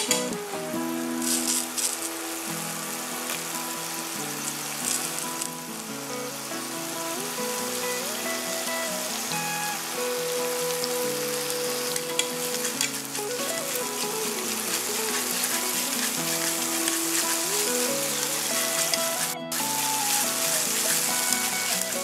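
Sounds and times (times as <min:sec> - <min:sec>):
background music of held notes: 0:00.0 - 0:22.0
food sizzling in a wok: 0:00.0 - 0:22.0
stirring in a wok: 0:12.0 - 0:22.0.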